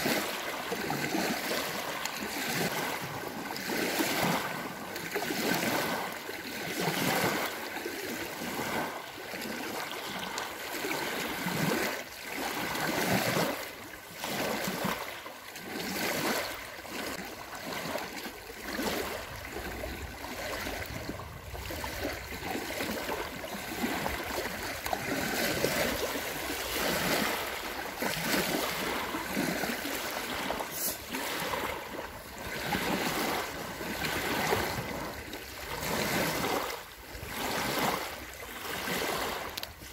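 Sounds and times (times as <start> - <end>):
waves lapping on sandy beach: 0.0 - 39.9.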